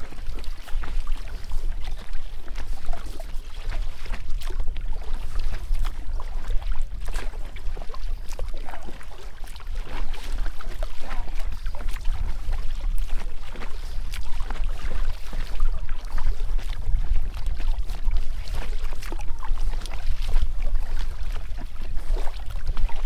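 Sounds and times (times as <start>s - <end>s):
water splashing around kayak: 0.0s - 23.0s.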